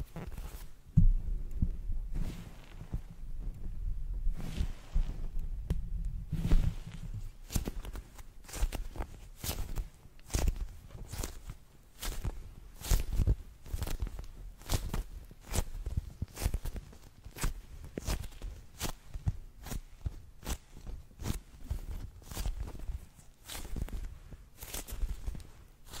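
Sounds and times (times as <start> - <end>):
low handling thumps: 0.9 - 4.4.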